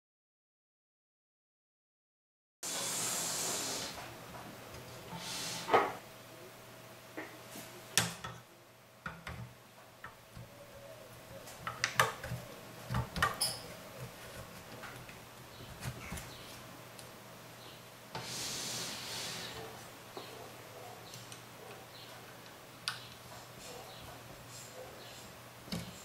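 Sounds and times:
faint steady hum: 2.7 - 26.0.

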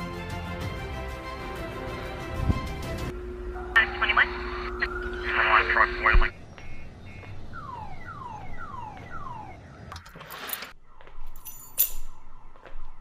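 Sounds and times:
electronic alarm tone sweeping down: 3.4 - 9.9.

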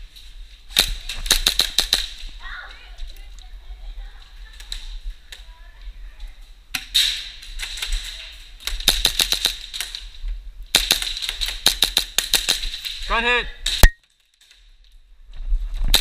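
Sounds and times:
airsoft guns firing: 0.8 - 2.2, 8.6 - 10.0, 10.7 - 13.9.

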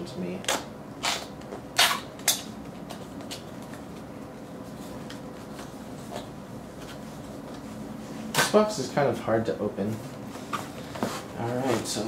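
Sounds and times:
scraping on cardboard: 10.5 - 11.9.

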